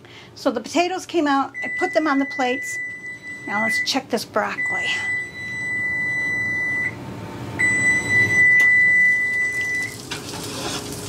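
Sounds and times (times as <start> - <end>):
kitchen timer beeping: 1.5 - 4.0, 4.6 - 7.0, 7.6 - 10.0.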